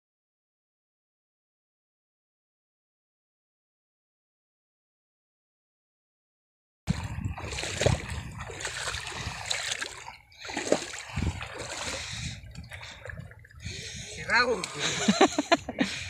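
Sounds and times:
shallow water splashing: 6.9 - 16.0.

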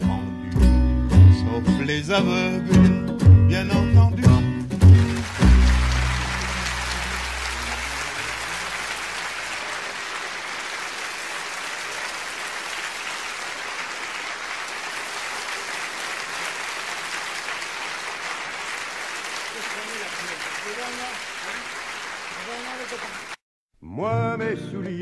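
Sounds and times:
audience applauding: 4.8 - 23.4.

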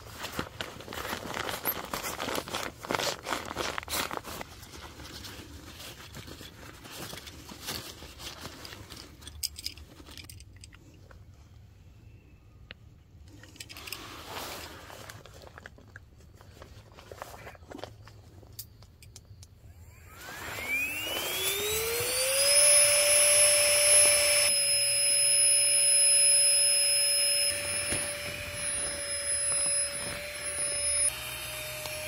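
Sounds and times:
sleeping pad crinkling: 0.0 - 10.2, 13.8 - 18.5, 27.5 - 31.1.

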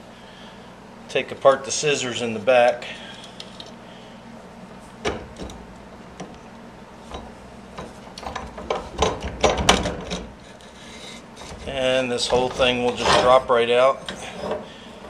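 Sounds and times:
metal clicks and knocks: 7.1 - 10.3.

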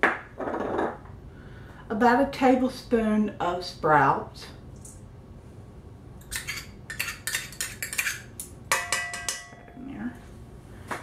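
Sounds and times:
metal spoon clinking on bowl: 6.2 - 9.8
metal bowl clang: 8.7 - 9.8.

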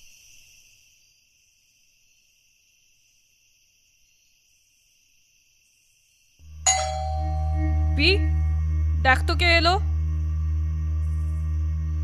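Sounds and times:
crickets chirring: 0.0 - 12.0
low hum: 6.4 - 12.0.

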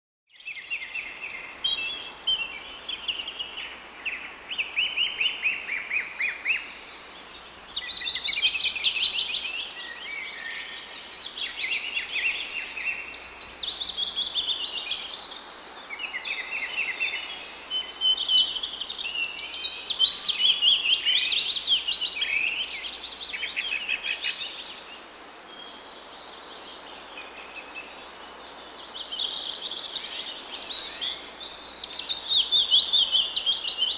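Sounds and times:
songbirds trilling and chirping: 0.3 - 33.9.

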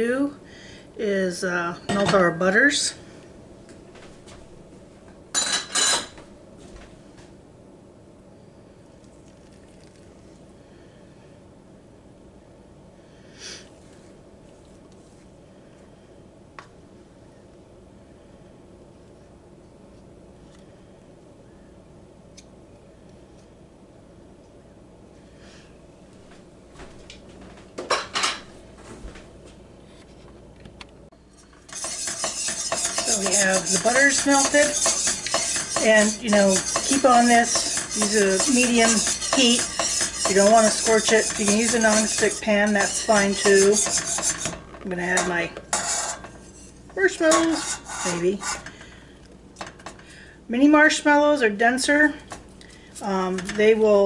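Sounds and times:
utensil clattering against metal pot: 31.6 - 46.4.

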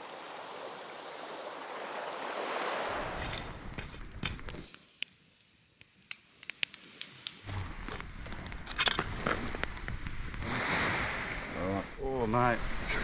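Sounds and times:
campfire crackling and popping: 3.1 - 11.5.

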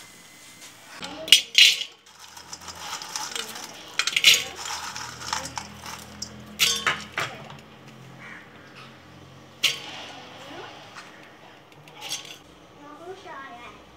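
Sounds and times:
fried snacks clattering into metal bowl: 1.0 - 8.4, 9.6 - 12.5.

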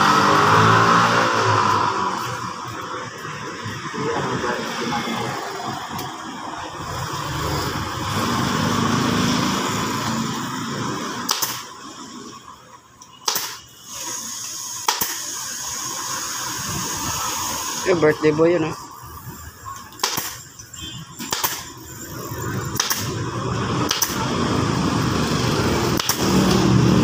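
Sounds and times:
steady background noise: 0.0 - 27.0
pneumatic staple gun firing: 11.2 - 11.7, 13.2 - 16.9, 20.0 - 20.5, 21.2 - 21.7, 22.7 - 23.2, 23.8 - 24.3, 25.8 - 26.8.

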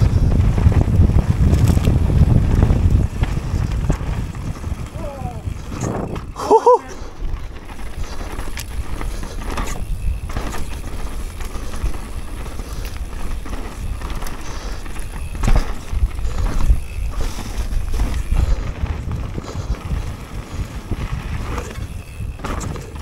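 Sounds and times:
bike rattling: 0.0 - 23.0
bike tyres rumbling on dirt: 0.0 - 23.0.

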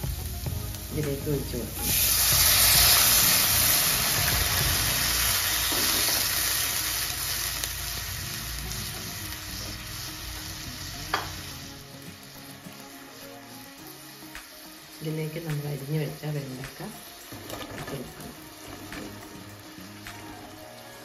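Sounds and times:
liquid sizzling in a hot pan: 0.0 - 21.0
wooden spatula stirring: 17.2 - 19.5.

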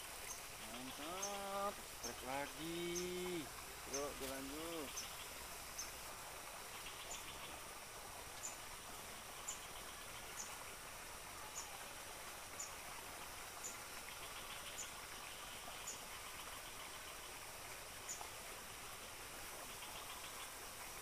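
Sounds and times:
insects buzzing: 0.0 - 11.0.

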